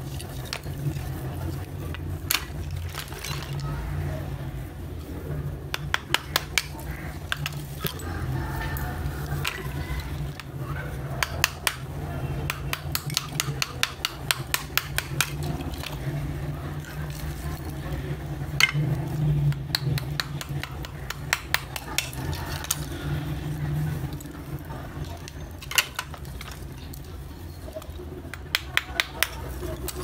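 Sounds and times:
small hammer tapping clay: 5.7s - 7.6s, 11.2s - 15.6s, 19.5s - 22.8s, 28.3s - 30.0s.

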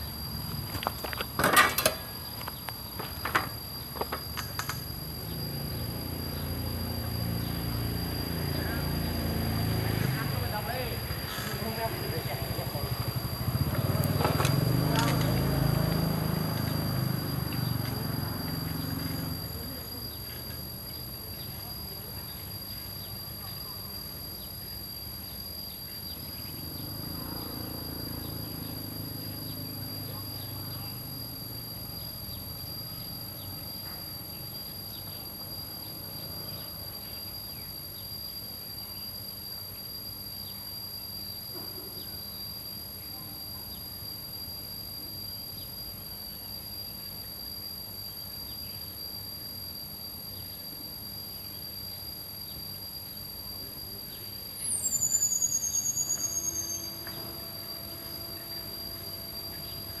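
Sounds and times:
high-pitched insect trill: 0.0s - 60.0s
high whistling squeal: 54.6s - 60.0s.

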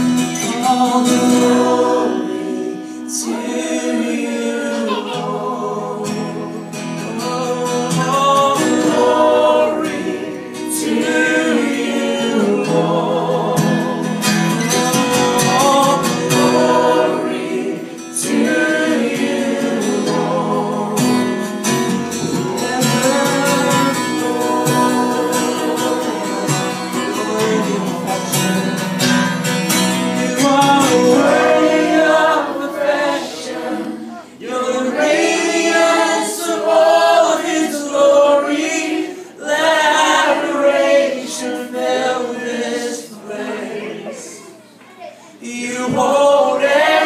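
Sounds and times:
strummed acoustic guitar: 0.0s - 37.1s
man and woman singing: 0.0s - 44.5s, 45.4s - 47.0s.

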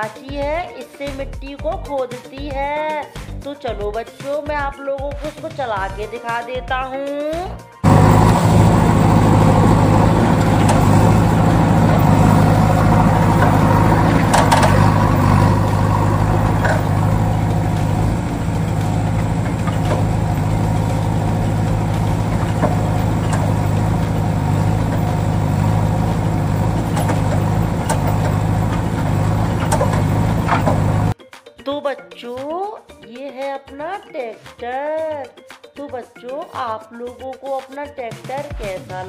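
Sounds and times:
engine idling sound effect: 7.8s - 31.2s.

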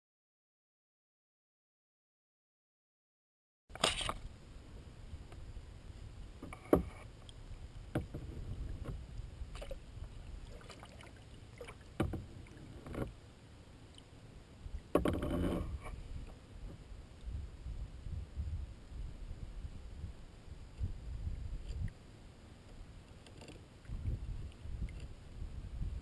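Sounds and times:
knocks and splashes against hull: 7.8s - 9.8s, 10.4s - 13.1s, 14.9s - 16.0s.

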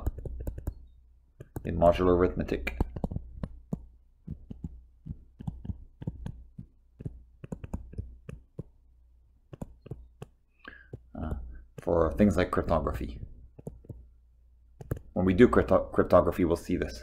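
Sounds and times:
stylus clicking on glass screen: 0.0s - 1.8s, 2.6s - 8.8s, 9.5s - 12.0s, 13.0s - 14.0s, 14.8s - 15.2s.

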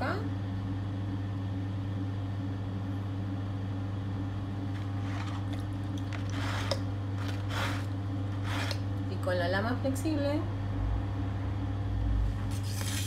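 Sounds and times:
potter's wheel humming: 0.0s - 13.0s
wet clay scraping and dabbing: 4.8s - 8.8s.

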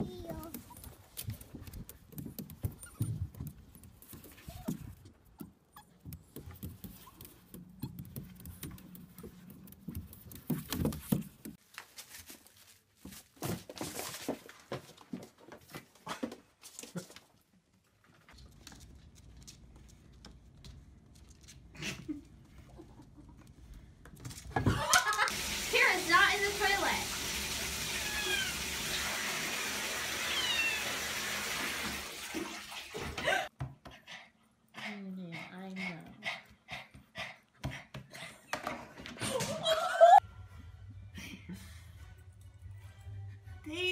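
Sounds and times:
dog paws tapping on plastic: 0.0s - 12.4s
rushing water: 25.3s - 33.2s
cat mewing: 27.9s - 28.8s, 30.2s - 31.1s.

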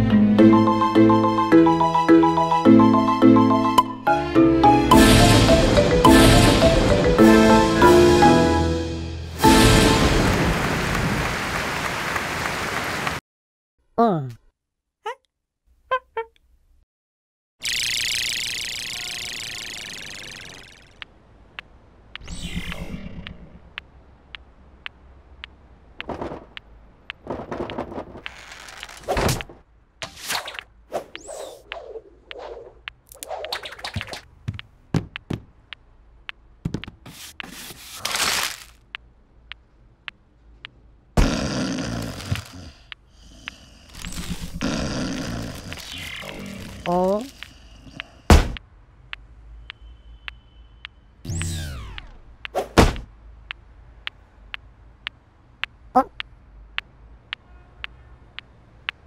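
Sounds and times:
loud thump: 48.3s - 48.6s, 52.6s - 53.1s.

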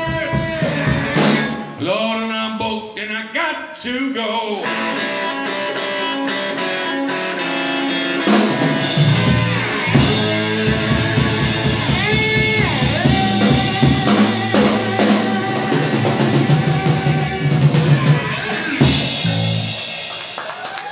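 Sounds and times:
drum kit: 0.0s - 1.8s, 8.2s - 20.9s
electric slide guitar: 0.0s - 1.8s, 4.6s - 20.1s
bass guitar: 0.0s - 2.0s, 4.6s - 20.7s.

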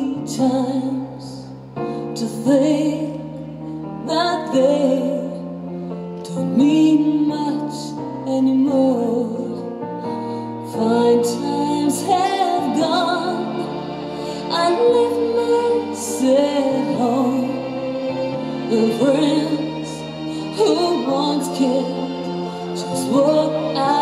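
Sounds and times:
woman singing: 0.0s - 5.5s, 6.2s - 9.7s, 10.6s - 24.0s
sustained instrumental chords: 11.4s - 24.0s.

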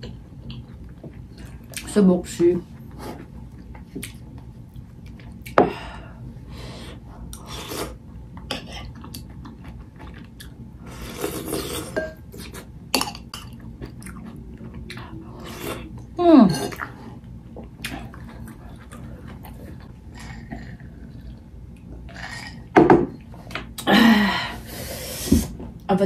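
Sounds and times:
chewing: 8.7s - 10.6s, 13.4s - 16.0s, 16.7s - 22.0s.

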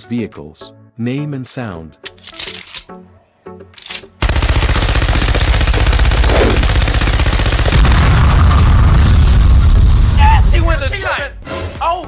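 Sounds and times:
machine gun firing: 4.2s - 8.8s.

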